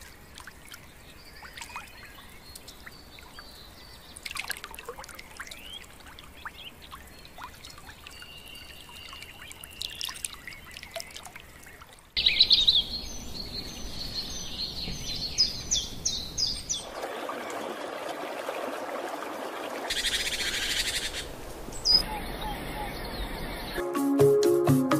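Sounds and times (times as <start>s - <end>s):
faint trickle of water: 0.0s - 12.2s
birds chirping: 0.0s - 17.8s, 19.9s - 23.8s.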